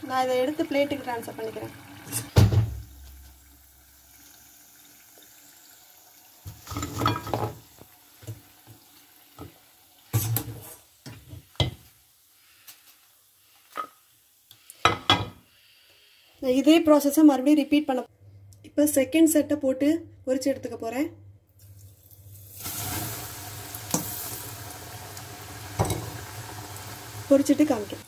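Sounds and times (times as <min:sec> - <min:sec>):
oil sizzling: 0:00.0 - 0:14.7, 0:21.6 - 0:28.0.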